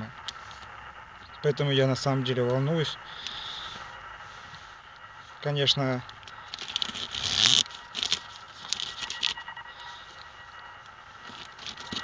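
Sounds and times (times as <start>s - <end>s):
plastic crinkling and rustling: 6.5s - 9.4s, 11.2s - 12.0s.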